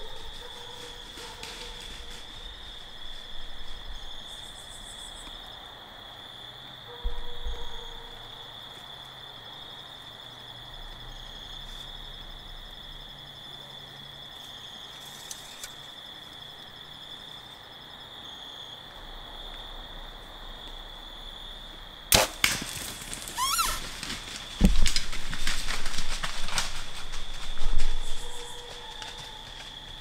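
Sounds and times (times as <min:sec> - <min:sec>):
insect chorus: 0:00.0 - 0:30.0
bow shot sharp cracks: 0:22.1 - 0:23.8.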